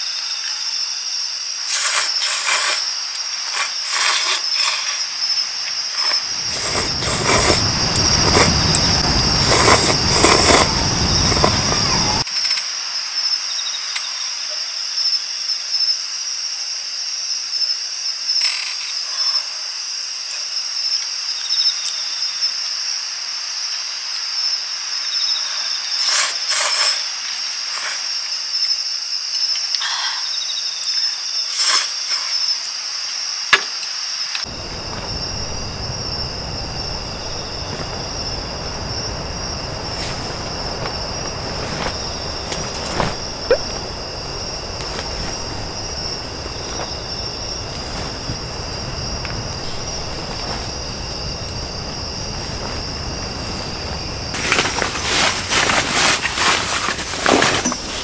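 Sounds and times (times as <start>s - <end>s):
crickets chirping: 0.0s - 58.0s
low rushing noise: 34.5s - 54.4s.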